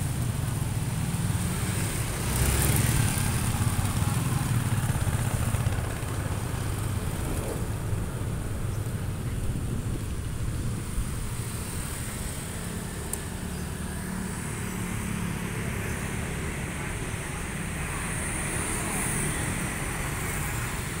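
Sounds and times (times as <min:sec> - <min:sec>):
motorcycles passing: 0:00.0 - 0:21.0.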